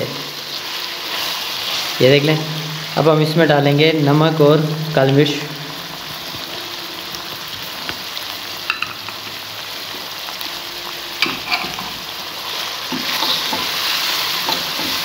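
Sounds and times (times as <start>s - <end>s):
food sizzling in a pan: 0.0s - 15.0s
spatula stirring and scraping: 11.2s - 15.0s.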